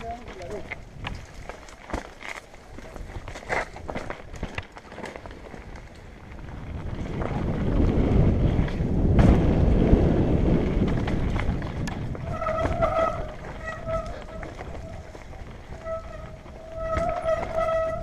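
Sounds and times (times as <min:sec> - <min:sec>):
wind buffeting microphone: 0:00.0 - 0:01.7, 0:05.6 - 0:18.0
mountain bike rattling: 0:00.0 - 0:18.0.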